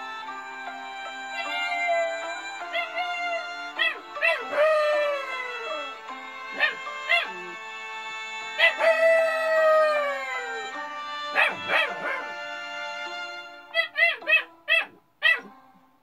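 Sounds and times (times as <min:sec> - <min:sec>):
music with sustained tones: 0:00.0 - 0:16.0
puppy howling and yipping: 0:01.3 - 0:07.7, 0:08.5 - 0:12.4, 0:13.7 - 0:15.5.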